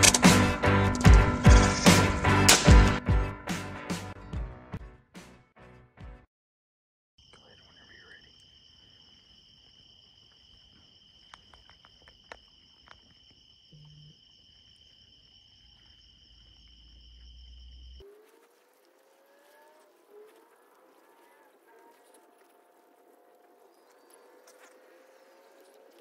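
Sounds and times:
night insects chirring: 7.2s - 26.0s.

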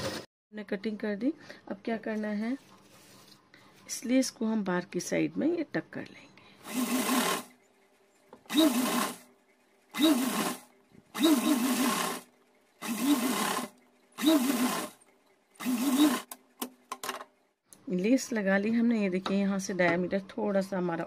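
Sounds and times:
sewing machine stitching: 6.6s - 7.6s, 8.4s - 17.2s.

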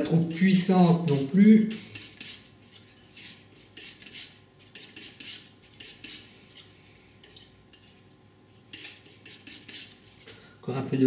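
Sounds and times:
painting knife scraping paint: 0.0s - 7.5s, 8.7s - 10.5s.

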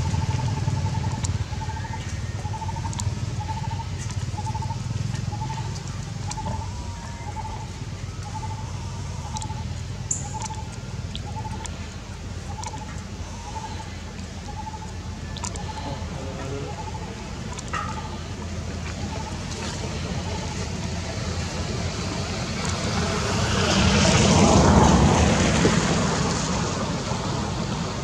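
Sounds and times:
low steady rumble: 0.0s - 28.0s
bird trilled call: 6.3s - 11.7s.

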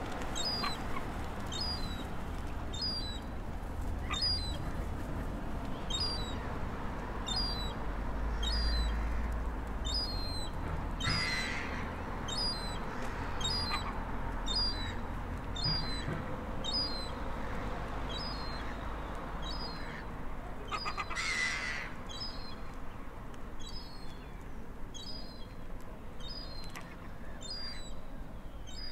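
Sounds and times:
gulls calling: 0.1s - 2.1s, 4.0s - 4.8s, 7.2s - 15.0s, 15.6s - 22.6s.

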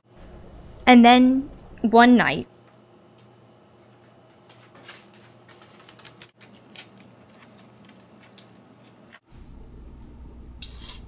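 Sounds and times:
dog claws clicking on wood floor: 4.3s - 9.0s.

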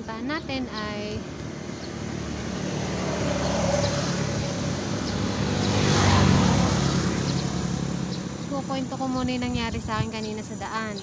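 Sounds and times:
vehicle engine passing: 0.0s - 11.0s.

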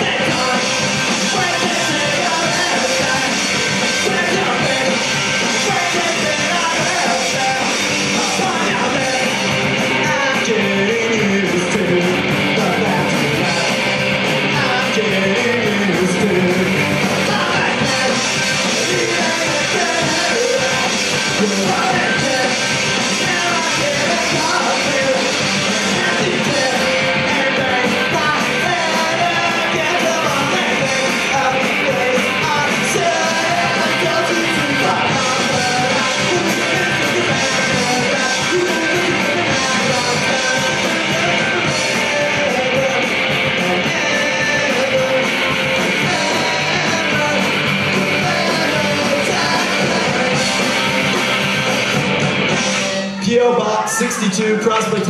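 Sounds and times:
singer yelling vocals: 0.0s - 51.0s, 52.8s - 55.0s
punk rock band playing live: 0.0s - 55.0s.

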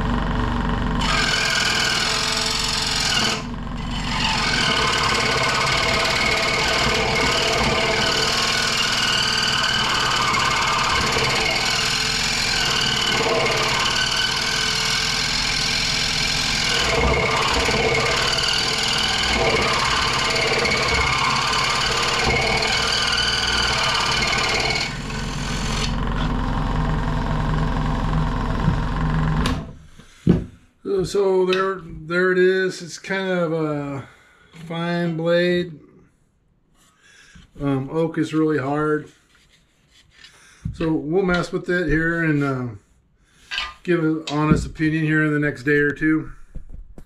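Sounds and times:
saw motor humming: 0.0s - 29.7s
scroll saw cutting wood: 0.0s - 29.7s.

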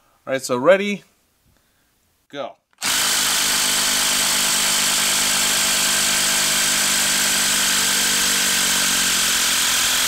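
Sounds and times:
impact wrench driving fastener: 2.7s - 10.0s.

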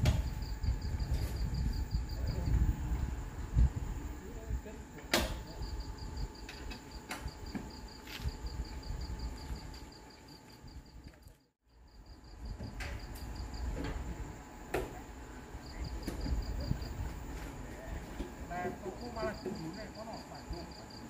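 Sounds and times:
steady low rumble: 0.0s - 10.0s
insect chirping: 0.0s - 21.0s.

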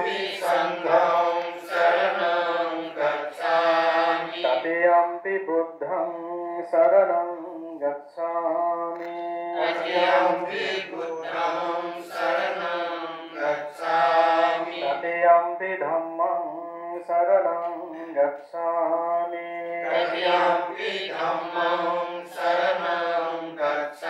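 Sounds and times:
voices chanting: 0.0s - 4.7s, 9.6s - 15.1s, 19.6s - 24.0s.

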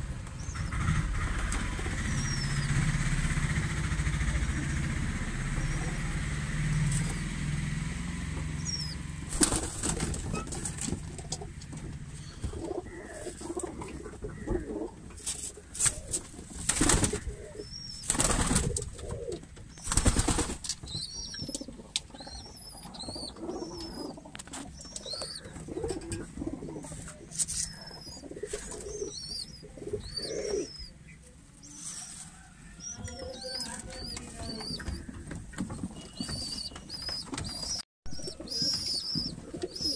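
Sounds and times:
pigeons cooing: 8.6s - 19.9s, 20.9s - 35.3s, 36.0s - 39.9s
wings flapping: 9.3s - 11.4s, 15.2s - 17.4s, 18.0s - 21.7s.

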